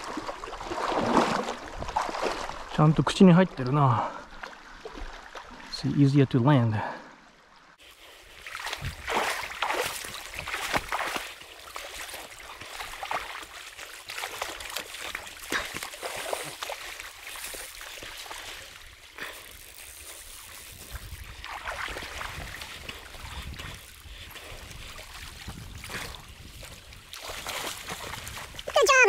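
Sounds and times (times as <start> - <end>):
splashing in shallow water: 0.0 - 5.7, 7.8 - 29.0
river current washing: 7.2 - 29.0
wind on microphone: 20.6 - 28.8.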